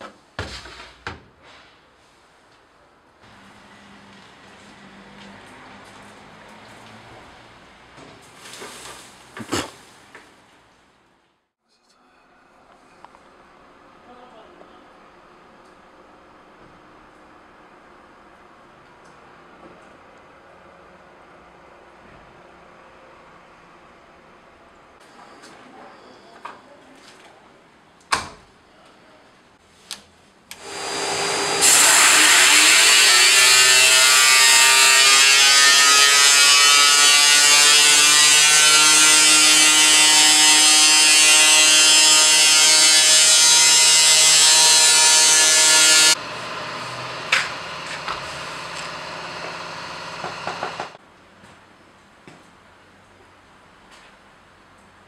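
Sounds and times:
filter cleaning machine rushing: 0:30.6 - 0:33.8, 0:46.2 - 0:51.0.

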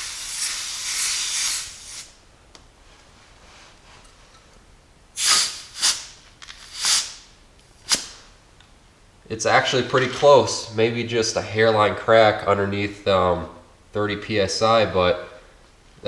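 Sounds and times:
air hissing from tire valve: 0:00.0 - 0:02.2, 0:05.2 - 0:07.3
short hisses from pressure gauge: 0:00.0 - 0:02.2, 0:05.2 - 0:07.3.

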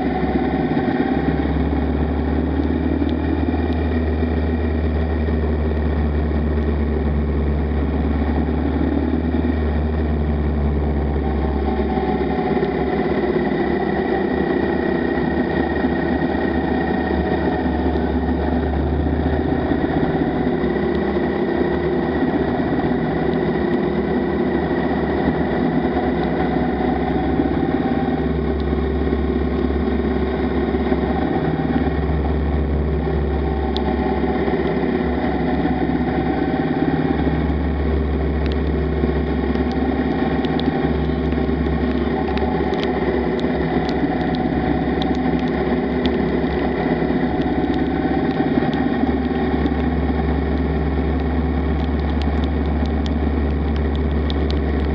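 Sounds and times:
motorcycle engine running: 0:00.0 - 0:54.9
sharp ticks: 0:33.5 - 0:54.9.

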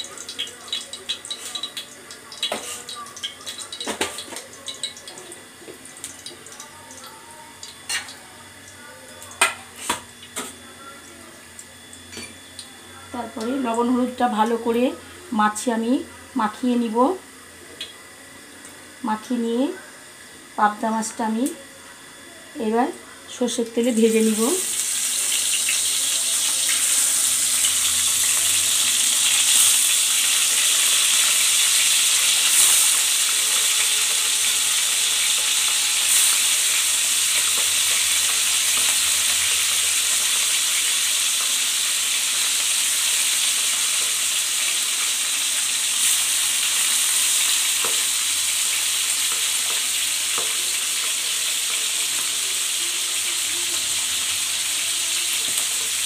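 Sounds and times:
fish sizzling in oil: 0:00.0 - 0:10.8, 0:23.4 - 0:56.0.

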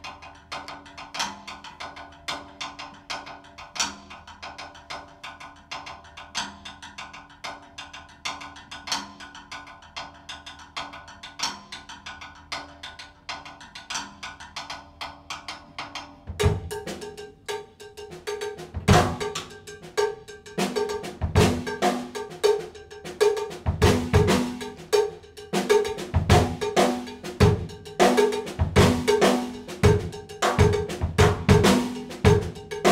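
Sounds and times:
drum kit played with sticks: 0:15.3 - 0:32.9.

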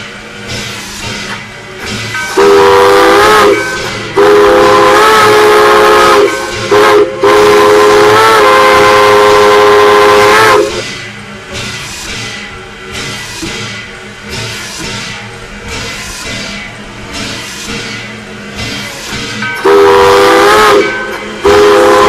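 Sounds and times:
chime steam whistle blasts: 0:02.2 - 0:10.8, 0:19.6 - 0:22.0.

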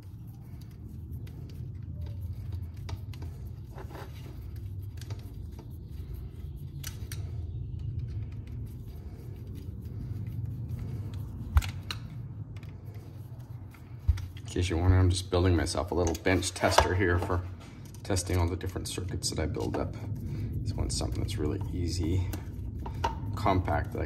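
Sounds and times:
low rumble: 0:00.0 - 0:24.0
screwdriver clicks and scrapes on metal: 0:06.7 - 0:07.3, 0:15.9 - 0:18.6.

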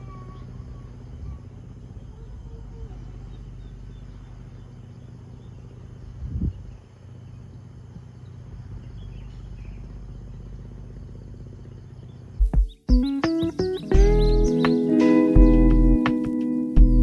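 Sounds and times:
low steady hum: 0:00.0 - 0:12.5
faint insects chirping: 0:00.0 - 0:17.0.

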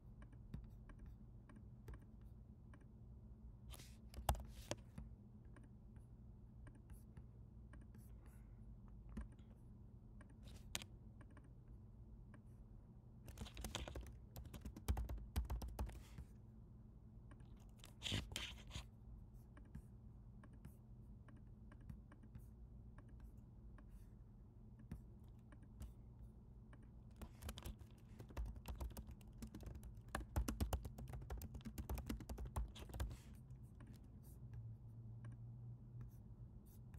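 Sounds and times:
low steady hum: 0:00.0 - 0:36.9
computer keyboard typing: 0:04.2 - 0:04.5, 0:13.3 - 0:16.2, 0:27.1 - 0:34.0.

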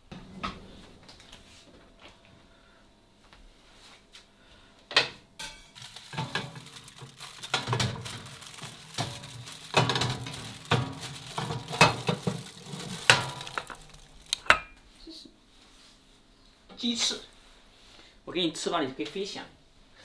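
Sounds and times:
metal clinking on rack and plate: 0:05.4 - 0:06.5
foil scraping and crinkling: 0:05.7 - 0:14.4.

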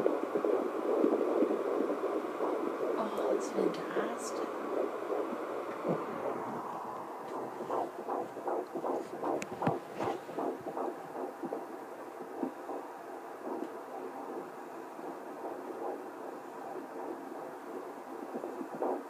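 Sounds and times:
fetal heartbeat whooshing pulses: 0:00.0 - 0:19.0
steady hum: 0:00.0 - 0:19.0
sharp clicks: 0:07.3 - 0:09.8.

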